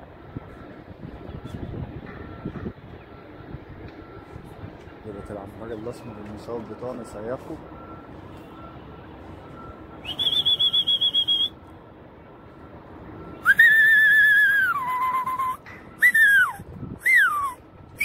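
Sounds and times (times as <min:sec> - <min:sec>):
person whistling by mouth: 0:10.0 - 0:11.6, 0:13.4 - 0:17.6.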